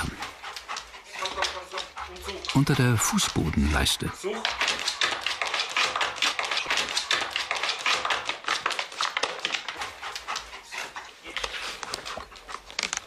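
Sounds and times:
dog scratching and sniffing: 0:00.0 - 0:13.0.

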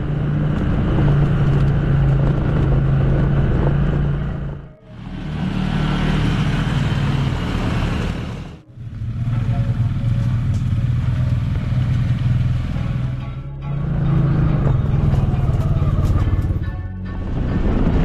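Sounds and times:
quad bike engine running: 0:00.0 - 0:18.0.

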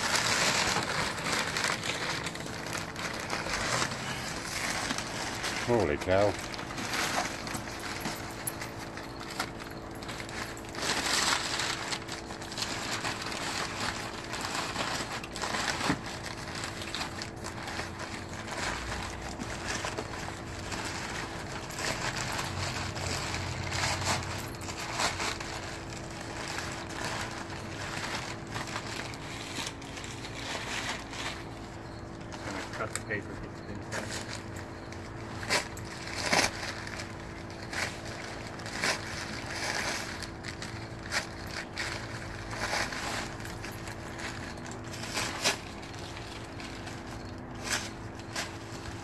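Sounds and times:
packing paper crinkling: 0:00.0 - 0:49.0.

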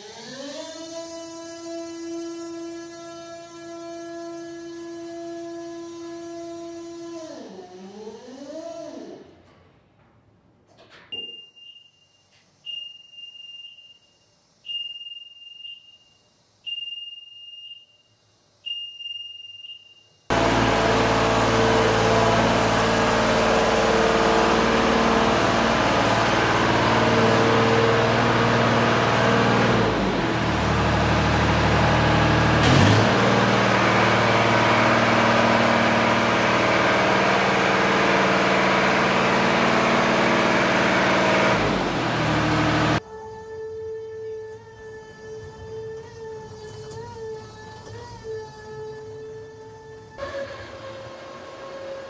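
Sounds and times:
motion alarm beeping: 0:11.2 - 0:20.3
diesel engine running: 0:20.3 - 0:43.0.

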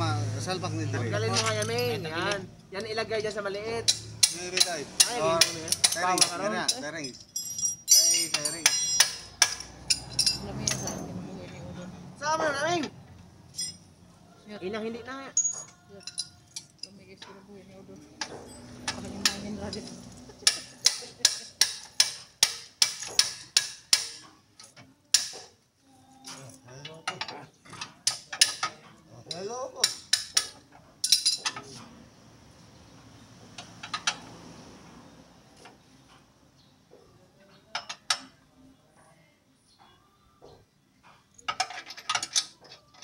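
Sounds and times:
hand tools clanking: 0:03.9 - 0:11.1, 0:13.5 - 0:13.9, 0:18.2 - 0:25.6, 0:26.2 - 0:31.9, 0:33.5 - 0:34.4, 0:41.0 - 0:43.0.

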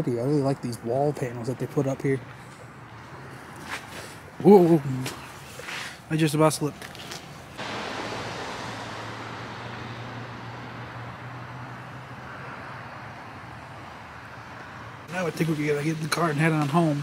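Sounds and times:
tyres hissing on road: 0:03.9 - 0:06.2, 0:06.9 - 0:17.0
low engine hum: 0:07.4 - 0:16.0.

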